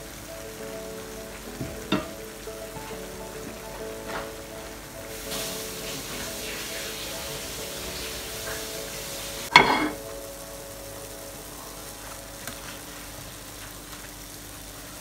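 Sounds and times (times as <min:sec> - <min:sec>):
dough sizzling in hot oil: 0:04.1 - 0:15.0.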